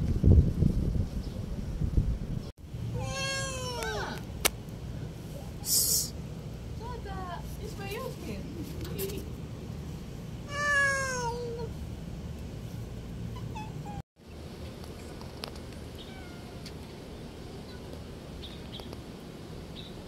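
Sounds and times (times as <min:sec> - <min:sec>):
cat meowing: 0:03.0 - 0:04.1, 0:10.5 - 0:11.7, 0:16.0 - 0:16.6.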